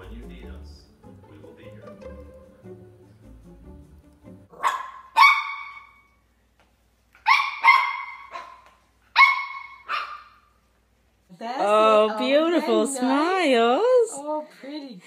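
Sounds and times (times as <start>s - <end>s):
small dog yapping: 4.5s - 6.1s, 7.2s - 10.5s.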